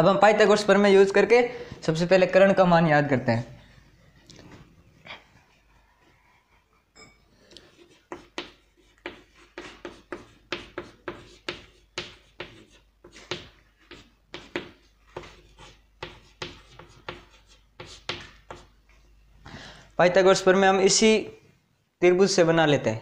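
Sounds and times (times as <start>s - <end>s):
chalk tapping and scratching: 7.5s - 18.8s.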